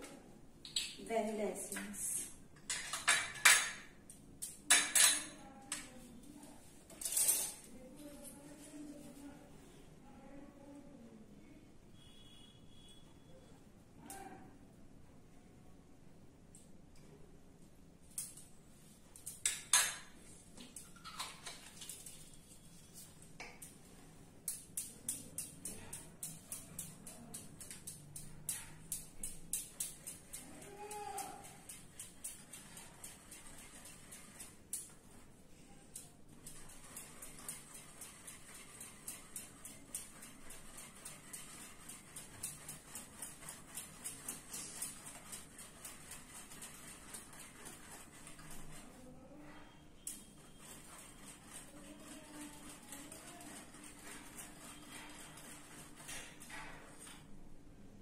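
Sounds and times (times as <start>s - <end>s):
kitchen utensils clattering on counter: 2.6s - 4.0s, 4.7s - 5.4s, 6.9s - 7.7s, 19.3s - 20.2s, 20.8s - 21.8s.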